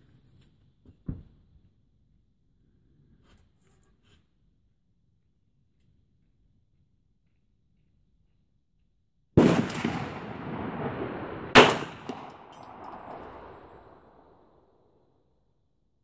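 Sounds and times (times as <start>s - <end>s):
pistol shots echoing: 9.4s - 14.3s.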